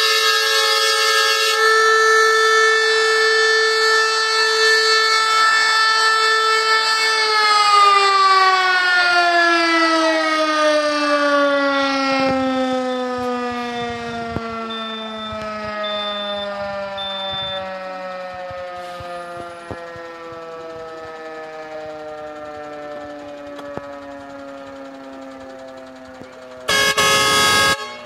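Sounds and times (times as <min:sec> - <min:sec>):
fire siren winding down: 0:00.0 - 0:28.0
short high beeps: 0:14.7 - 0:17.6.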